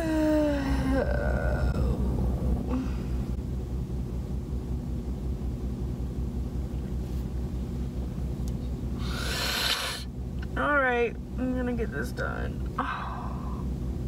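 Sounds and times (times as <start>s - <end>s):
breathy sigh: 2.7s - 3.4s.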